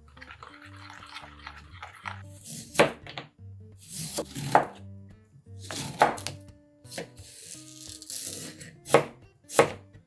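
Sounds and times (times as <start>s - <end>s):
knife slicing vegetables: 2.4s - 3.0s, 3.8s - 4.8s, 5.6s - 9.8s
knife chopping on board: 2.5s - 3.2s, 3.9s - 4.8s, 5.6s - 7.2s, 8.2s - 9.8s.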